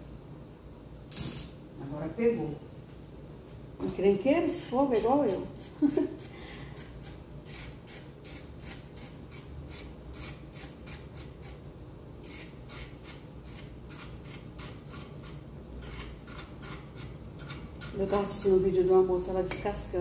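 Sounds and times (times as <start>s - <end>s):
knife scraping carrot: 4.5s - 18.4s.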